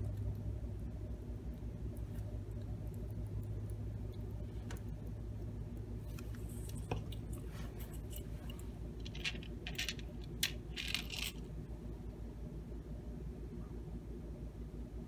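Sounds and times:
low hum: 0.0s - 15.0s
plastic parts clicking and rustling: 8.0s - 11.4s.

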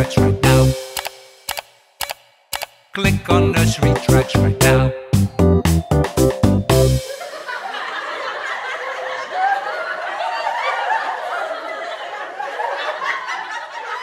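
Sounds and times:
many voices laughing: 7.0s - 14.0s.

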